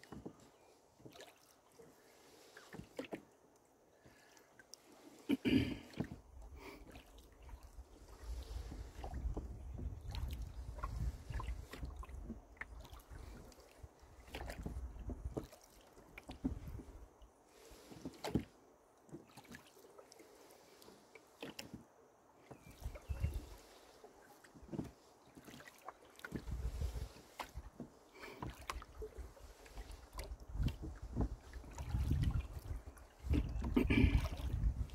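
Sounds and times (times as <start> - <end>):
oars splashing in water: 0.0 - 34.9
wind rumble on microphone: 7.6 - 12.8, 14.5 - 15.4, 16.4 - 17.1, 22.7 - 23.6, 26.4 - 27.7, 30.1 - 34.9.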